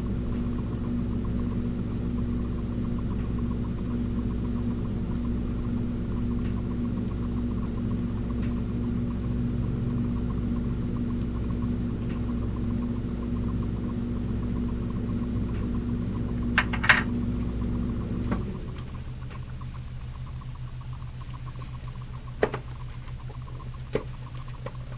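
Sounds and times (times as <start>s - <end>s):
low machine hum: 0.0s - 24.9s
kitchenware clicks: 16.6s - 17.1s.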